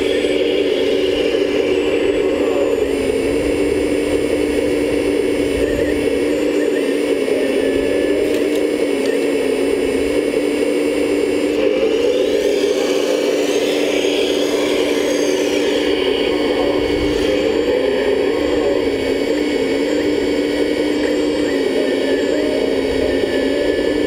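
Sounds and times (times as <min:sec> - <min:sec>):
excavator motor whines: 0:00.0 - 0:24.0
toy excavator hydraulic whir: 0:00.0 - 0:24.0.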